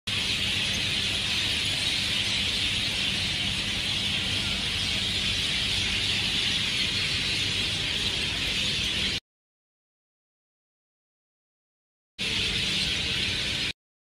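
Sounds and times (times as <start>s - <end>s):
flock of birds chattering: 0.1s - 9.2s, 12.2s - 13.7s.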